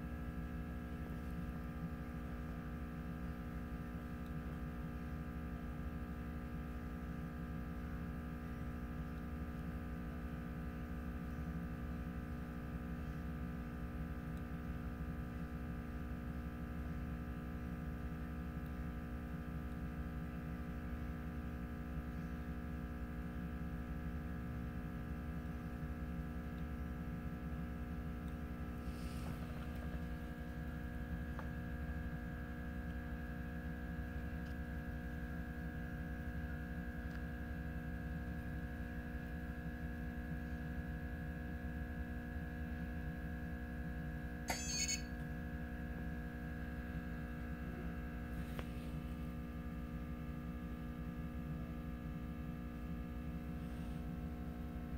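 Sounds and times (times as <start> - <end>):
oven machine hum: 0.0 - 54.9
short sharp click: 44.5 - 45.1.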